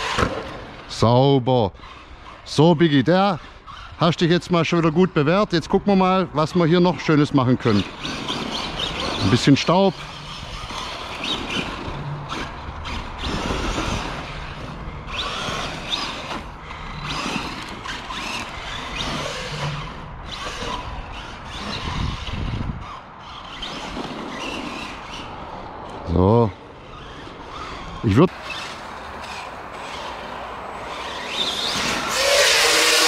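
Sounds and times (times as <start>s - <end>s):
tyres scrabbling in dirt: 0.0s - 33.0s
electric motor whining: 7.6s - 25.6s, 26.8s - 33.0s.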